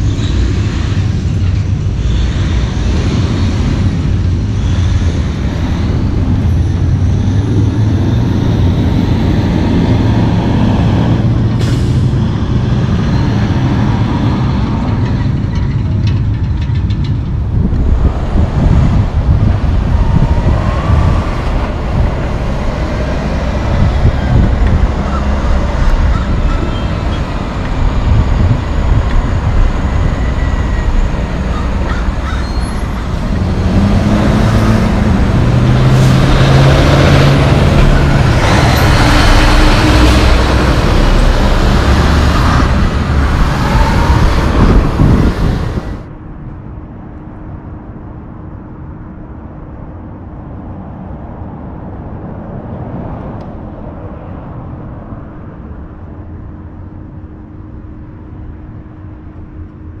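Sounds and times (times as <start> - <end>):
truck diesel engine passing: 0.0 - 16.3, 17.4 - 46.1
low diesel rumble with hum: 0.0 - 60.0
tires rumbling on road: 0.0 - 60.0.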